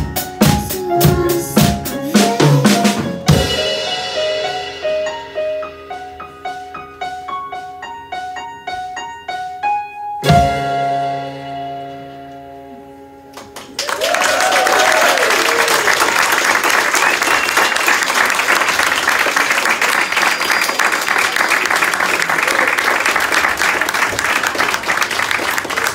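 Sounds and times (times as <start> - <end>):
piano notes: 0.0 - 13.6
audience applause: 13.4 - 25.9
people whooping: 13.8 - 18.2.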